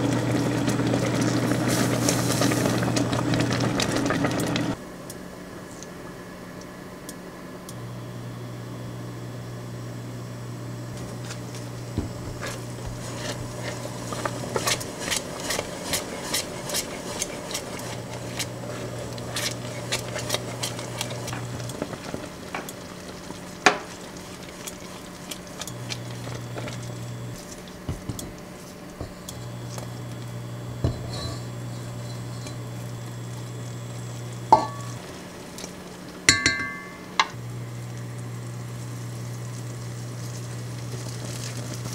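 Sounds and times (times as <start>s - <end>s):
low cooktop hum: 0.0s - 41.9s
jam bubbling: 10.9s - 41.9s
spatula scraping pot: 11.0s - 32.8s
spoon knocking on pot: 34.5s - 35.0s, 36.3s - 37.3s.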